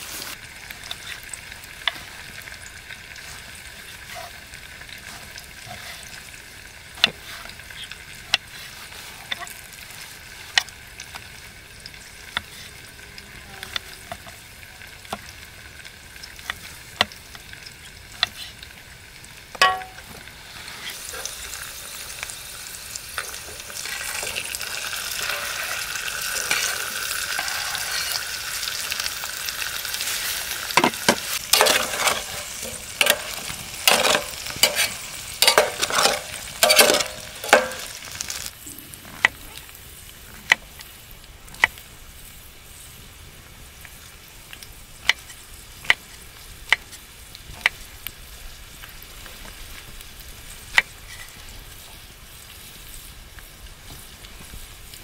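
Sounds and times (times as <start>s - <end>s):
food sizzling in oil: 0.0s - 55.0s
spatula scraping pan: 3.2s - 6.4s, 7.0s - 10.7s, 23.2s - 29.0s, 30.0s - 38.5s.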